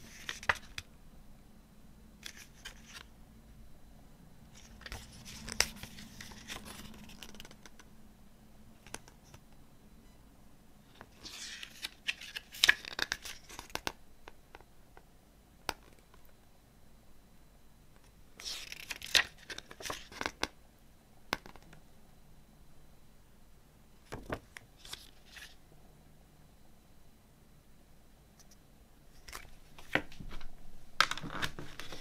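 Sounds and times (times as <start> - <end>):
paper pages rustling: 0.0 - 0.9, 2.2 - 3.1, 4.6 - 7.8, 11.0 - 13.9, 18.4 - 20.4, 24.1 - 25.6, 29.2 - 32.0.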